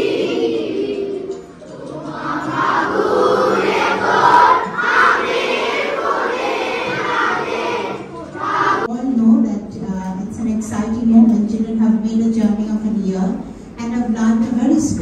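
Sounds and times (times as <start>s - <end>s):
children singing in unison: 0.0s - 8.9s.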